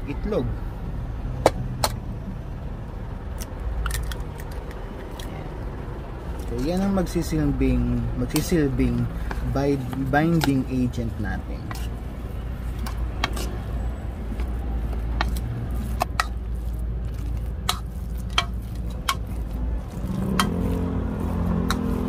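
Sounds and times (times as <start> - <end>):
spoon stirring wet filling: 8.2 - 22.0.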